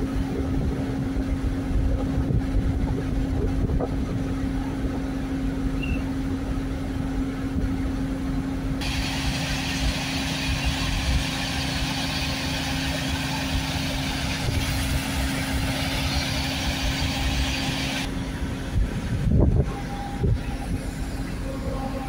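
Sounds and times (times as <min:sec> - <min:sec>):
diesel engines humming: 0:00.0 - 0:22.0
hiss: 0:08.8 - 0:18.1.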